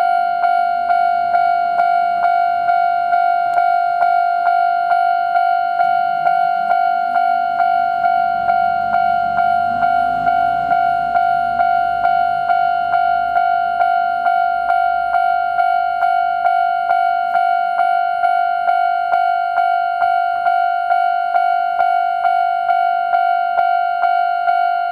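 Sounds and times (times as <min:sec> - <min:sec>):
level crossing bell ringing: 0:00.0 - 0:24.9
diesel railcar engine rumble: 0:07.3 - 0:15.6.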